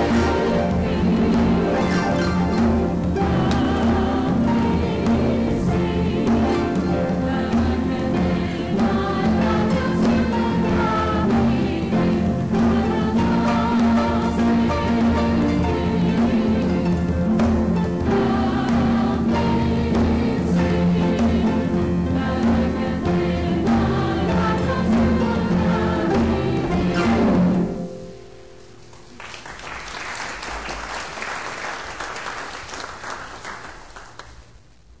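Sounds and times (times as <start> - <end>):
conga drum strokes: 0.0 - 28.2
congregation singing: 0.0 - 28.4
harps playing: 0.0 - 28.6
applause: 28.9 - 34.7.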